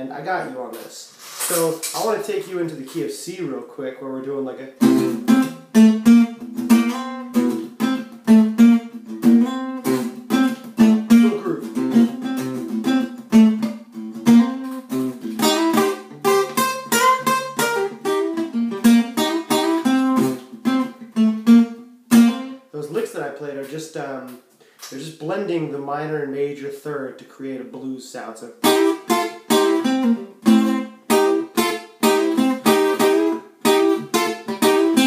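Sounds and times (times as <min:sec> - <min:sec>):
acoustic guitar blues lick: 0:04.7 - 0:23.8, 0:28.6 - 0:35.0.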